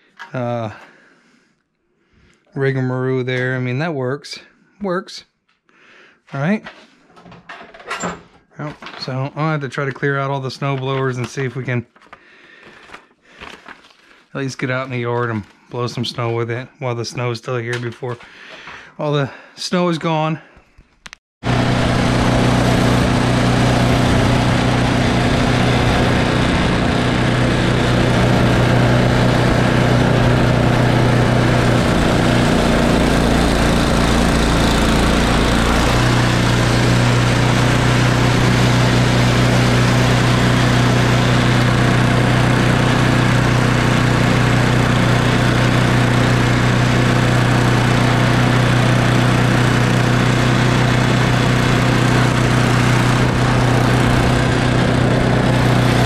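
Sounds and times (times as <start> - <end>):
small gas engine running: 21.4 - 56.0.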